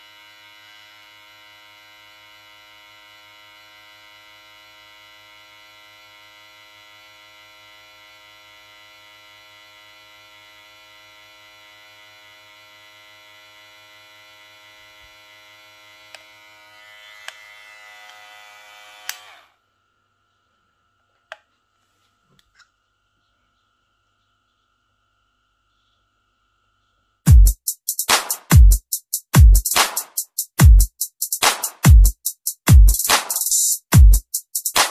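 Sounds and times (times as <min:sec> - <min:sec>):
hair clipper humming: 0:00.1 - 0:19.6, 0:30.6 - 0:34.9.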